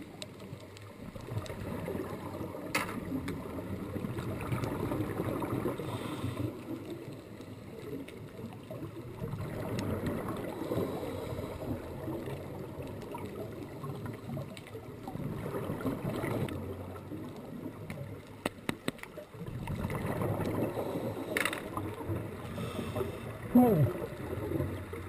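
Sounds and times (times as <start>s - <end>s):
faint clicks: 0.0s - 3.5s, 17.2s - 22.2s
underwater water noise: 0.0s - 25.0s.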